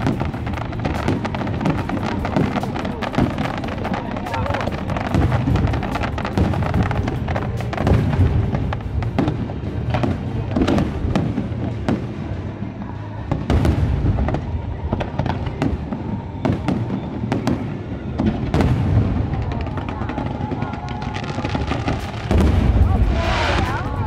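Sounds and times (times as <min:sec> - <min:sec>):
fireworks cracks and booms: 0:00.0 - 0:24.0
low rumble: 0:21.8 - 0:24.0.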